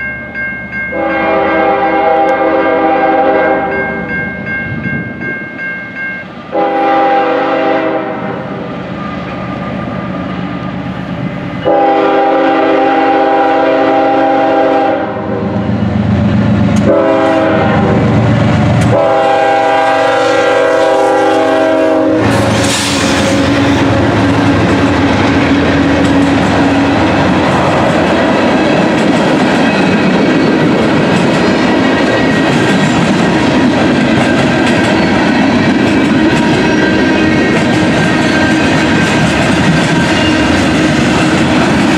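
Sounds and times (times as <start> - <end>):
locomotive air horn: 0.9 - 3.8, 6.5 - 8.6, 11.6 - 15.6, 16.8 - 18.2, 18.9 - 24.4
locomotives passing: 15.2 - 41.9
freight cars rumbling and clattering: 22.2 - 41.9.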